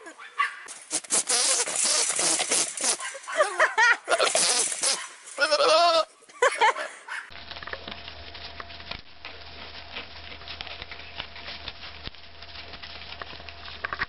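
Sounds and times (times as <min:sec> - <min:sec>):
goat bleating: 0:04.0 - 0:06.2.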